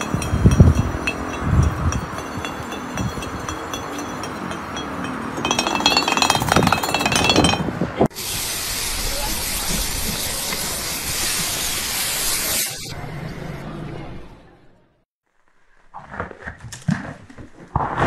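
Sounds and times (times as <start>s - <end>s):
high-pitched clinking and squealing: 0.0s - 7.8s
pressure washer spraying metal: 8.2s - 12.9s.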